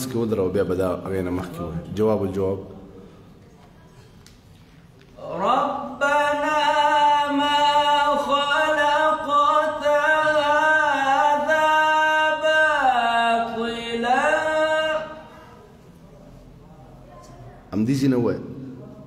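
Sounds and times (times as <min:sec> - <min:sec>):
man chanting melismatic recitation: 0:05.2 - 0:15.5.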